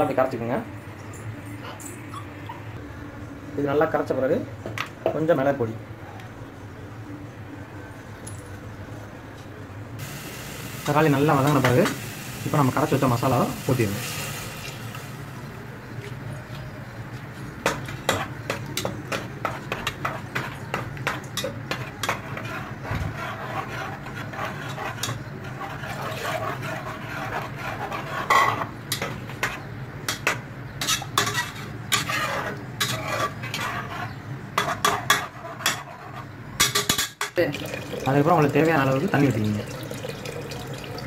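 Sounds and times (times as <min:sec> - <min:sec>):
spatula scraping a metal pot: 0:18.1 - 0:36.7
liquid pouring into pot: 0:37.4 - 0:41.0.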